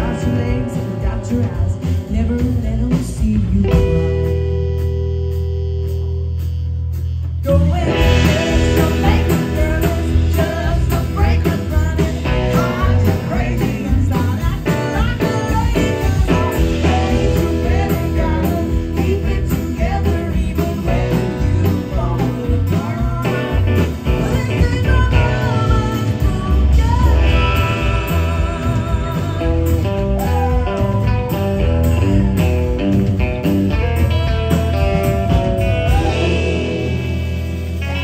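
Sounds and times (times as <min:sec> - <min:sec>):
woman singing: 0:00.0 - 0:04.4, 0:07.4 - 0:30.9
acoustic guitar: 0:00.0 - 0:38.0
drums: 0:00.0 - 0:38.0.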